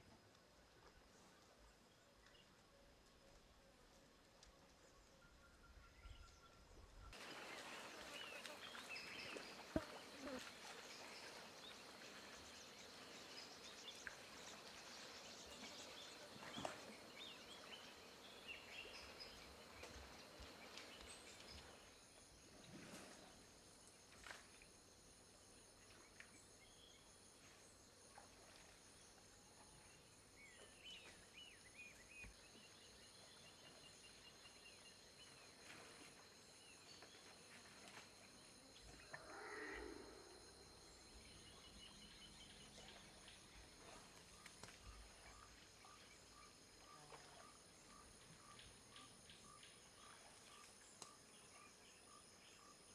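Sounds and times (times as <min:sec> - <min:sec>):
high insect drone: 0:35.8 - 0:43.8.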